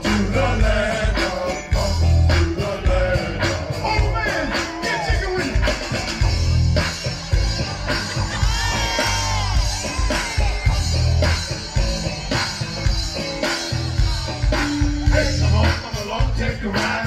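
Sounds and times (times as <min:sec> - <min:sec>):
person singing: 0:00.0 - 0:06.1
heavy bass line: 0:00.0 - 0:17.0
steady drum beat: 0:00.0 - 0:17.0.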